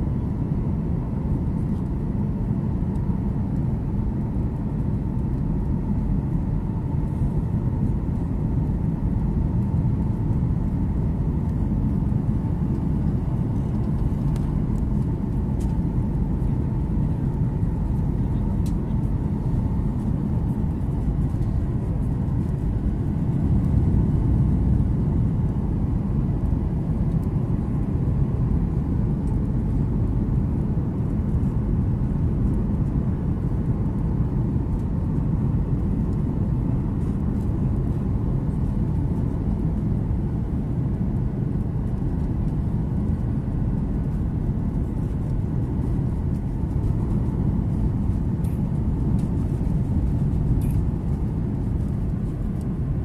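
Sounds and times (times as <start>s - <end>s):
aircraft engine rumble: 0.0s - 53.0s
faint steady whine: 0.0s - 53.0s.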